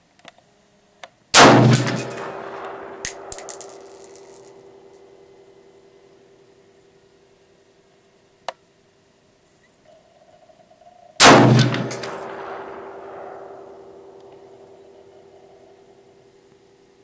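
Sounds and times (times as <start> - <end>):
rifle gunshots with echo: 1.4 - 5.4, 11.2 - 15.6.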